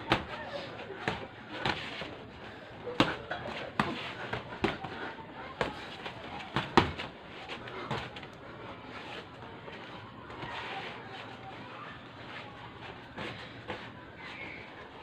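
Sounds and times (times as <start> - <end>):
boxing gloves punching: 2.9 - 5.0, 6.5 - 7.1.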